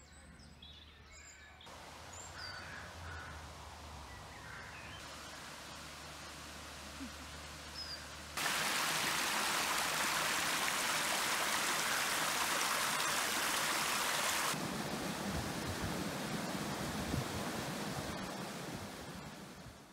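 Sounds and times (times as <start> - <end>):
running water: 1.7 - 19.9
water rushing over weir: 5.0 - 19.9.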